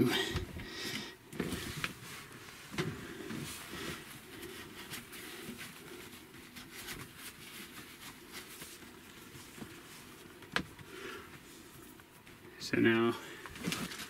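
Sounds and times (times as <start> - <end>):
hands handling cables: 13.4 - 14.0.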